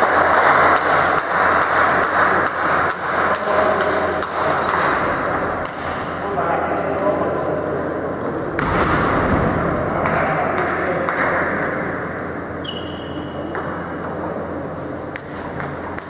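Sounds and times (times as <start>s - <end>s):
table tennis balls clicking: 0.0s - 9.0s, 13.0s - 16.0s
sports hall background noise: 0.0s - 16.0s.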